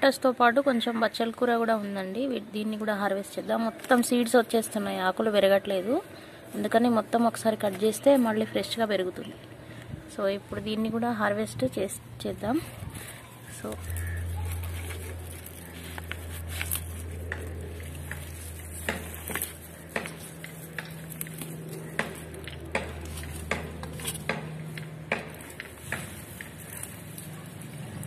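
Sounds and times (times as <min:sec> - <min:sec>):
low steady hum: 0:00.0 - 0:28.0
plant stems snapping: 0:13.0 - 0:28.0.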